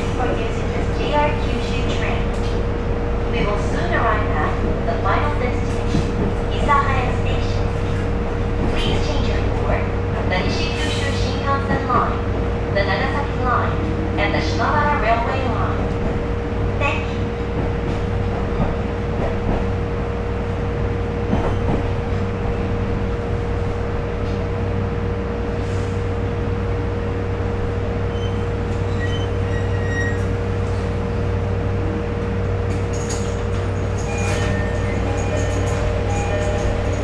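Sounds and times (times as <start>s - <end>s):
railcar low hum: 0.0s - 37.0s.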